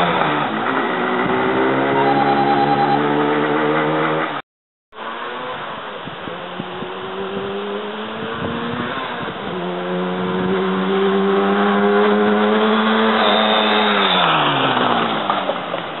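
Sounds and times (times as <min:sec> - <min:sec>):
two-stroke motorcycle engine: 0:00.0 - 0:04.3.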